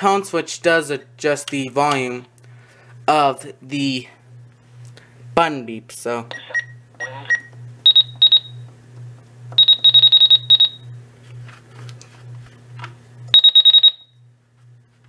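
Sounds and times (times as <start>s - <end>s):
short high-pitched beeps: 7.3s - 8.5s, 9.6s - 10.8s, 13.4s - 14.1s.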